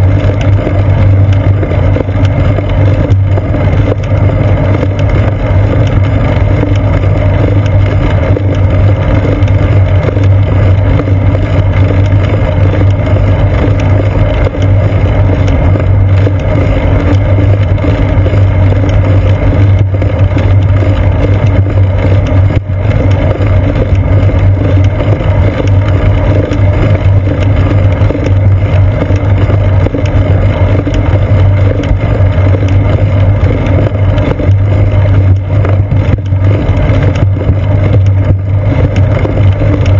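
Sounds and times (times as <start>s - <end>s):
bicycle tyres rumbling on pavement: 0.0s - 39.9s.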